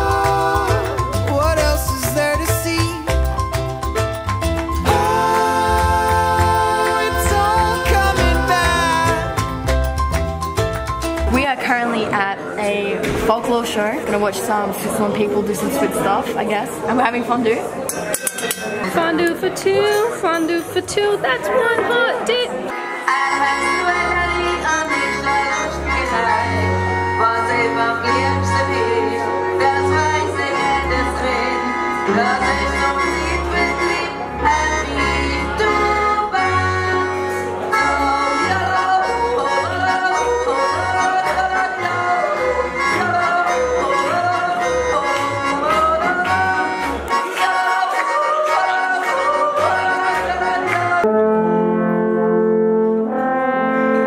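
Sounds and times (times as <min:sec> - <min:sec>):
woman singing: 0:00.0 - 0:02.0, 0:04.8 - 0:09.4, 0:18.8 - 0:51.1
plucked double bass: 0:00.0 - 0:11.5
accordion: 0:00.0 - 0:11.6, 0:18.8 - 0:54.0.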